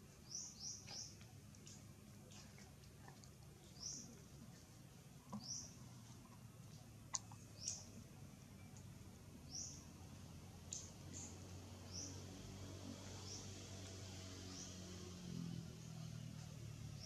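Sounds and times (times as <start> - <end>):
bird chirps: 0.2 - 1.8, 3.6 - 4.2, 5.3 - 5.8, 7.1 - 8.0, 9.4 - 10.0.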